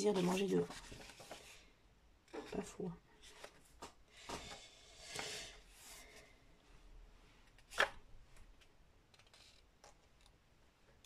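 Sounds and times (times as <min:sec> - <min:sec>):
paper rustling: 0:00.0 - 0:01.7.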